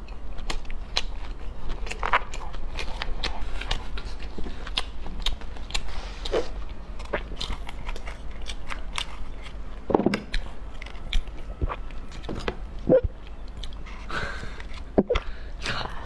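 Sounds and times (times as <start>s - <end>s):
chewing: 0.0s - 9.6s, 10.2s - 15.9s
crab shell cracking and scraping: 0.1s - 12.6s.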